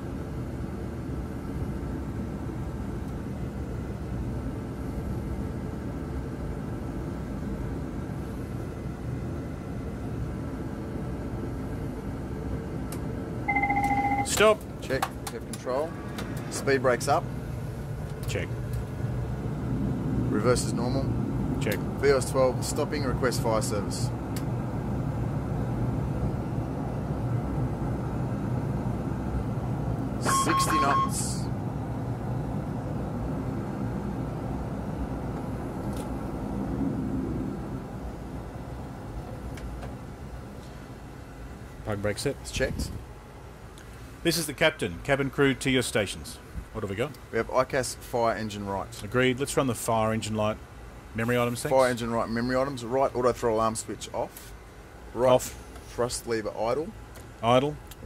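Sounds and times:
jet engines rumbling: 0.0s - 58.0s
cockpit alarm tone: 13.5s - 14.4s, 30.2s - 31.4s.

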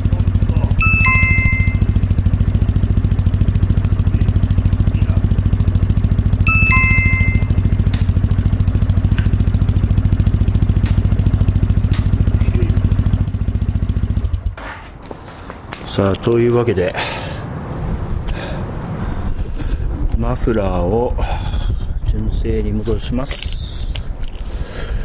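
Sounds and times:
motorcycle engine idling: 0.0s - 14.7s
two-note chime: 0.7s - 2.0s, 6.5s - 7.7s.

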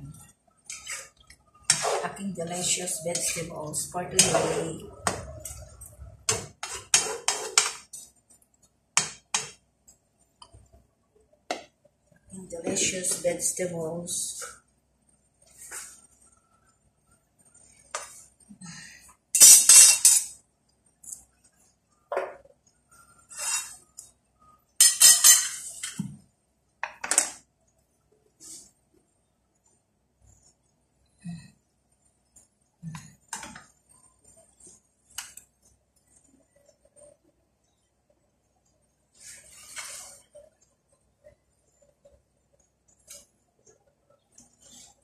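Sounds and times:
spatula scraping a frying pan: 0.6s - 3.5s, 6.3s - 8.1s, 23.1s - 23.8s, 39.2s - 40.4s.

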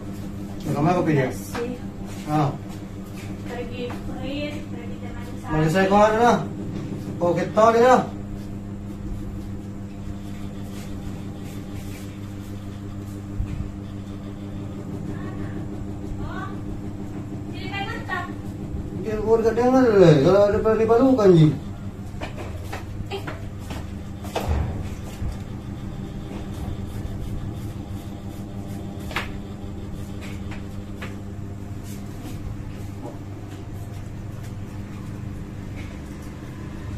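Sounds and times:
low hum: 0.0s - 36.9s
razor and comb scraping hair: 26.2s - 31.1s.

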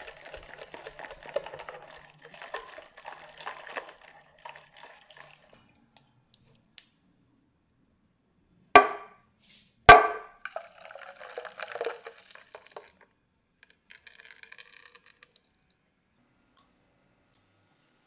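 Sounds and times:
thick liquid pouring into saucepan: 0.0s - 5.8s, 10.4s - 13.0s, 13.6s - 15.8s
sharp knocks: 8.8s - 9.1s, 9.9s - 10.3s.

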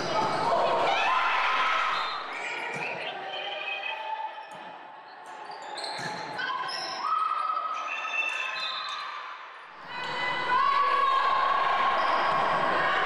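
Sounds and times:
sneakers squeaking: 5.3s - 7.4s.

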